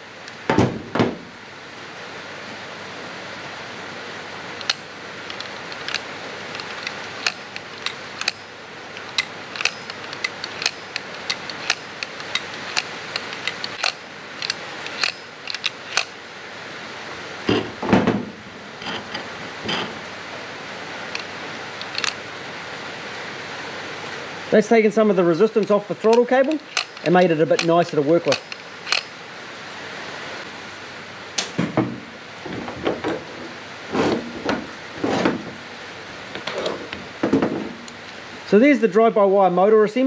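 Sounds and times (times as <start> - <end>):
steady hiss: 0.0 - 40.0
tools and metal parts clicking: 4.6 - 16.2, 21.1 - 22.2, 25.5 - 29.2.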